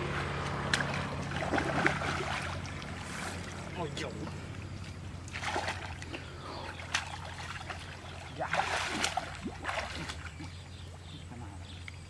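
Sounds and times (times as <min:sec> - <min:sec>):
muddy water sloshing and splashing: 0:00.0 - 0:12.0
steady low hum: 0:00.0 - 0:12.0.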